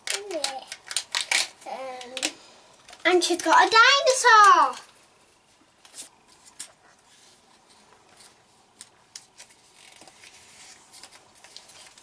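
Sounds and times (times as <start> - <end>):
plastic pieces clicking on table: 0.0 - 2.4.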